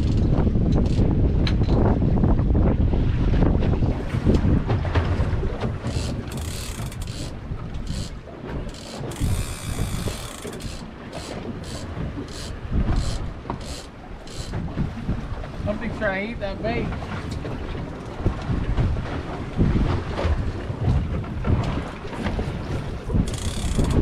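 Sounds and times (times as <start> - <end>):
fishing reel ratcheting: 0.0 - 1.1, 5.8 - 14.6, 23.3 - 24.0
sea: 0.0 - 24.0
wind: 0.0 - 24.0.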